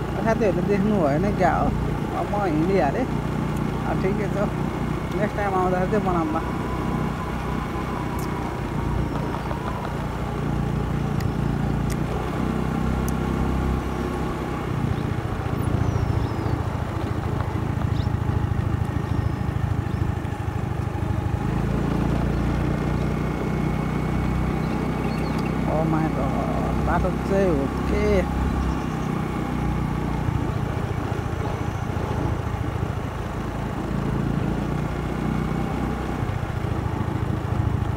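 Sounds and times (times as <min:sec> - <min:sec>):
motorbike engine running: 0:00.0 - 0:37.9
road and wind noise: 0:00.0 - 0:37.9.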